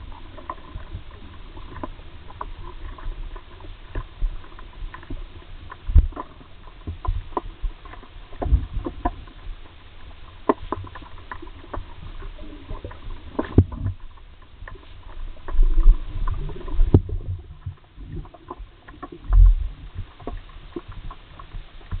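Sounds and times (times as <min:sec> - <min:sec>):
sharp clicks and crackles: 0:00.0 - 0:22.0
muffled underwater thumps: 0:05.8 - 0:06.3, 0:13.4 - 0:14.0, 0:15.5 - 0:18.4.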